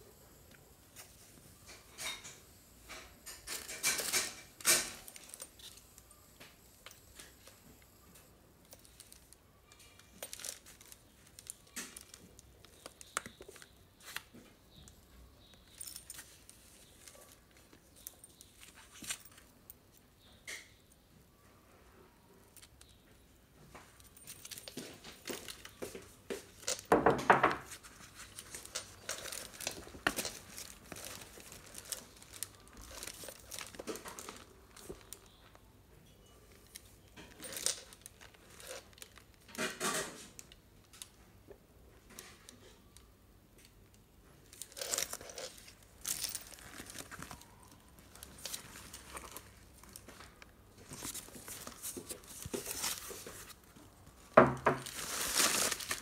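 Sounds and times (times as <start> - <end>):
plastic and tissue wrapping crinkling: 0.9 - 20.7, 22.2 - 41.3, 41.9 - 56.0.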